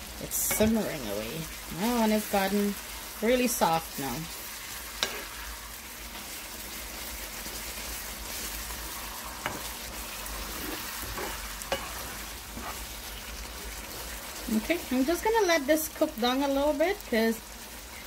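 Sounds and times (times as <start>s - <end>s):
food sizzling in oil: 0.0s - 18.0s
wooden spoon stirring: 7.5s - 14.6s.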